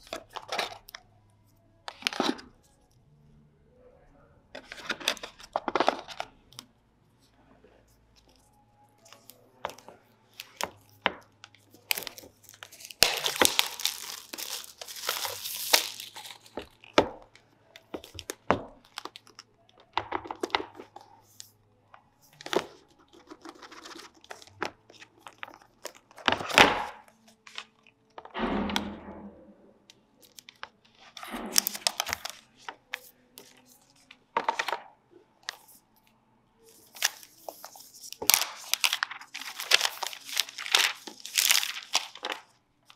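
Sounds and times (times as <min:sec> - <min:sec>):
packaging crinkling: 0:11.5 - 0:17.1, 0:30.2 - 0:34.8, 0:36.7 - 0:42.9
cardboard tearing: 0:11.9 - 0:16.6, 0:37.0 - 0:42.4.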